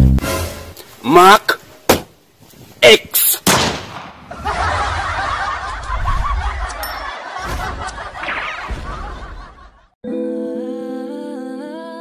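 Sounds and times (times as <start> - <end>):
many people laughing: 4.3 - 10.0.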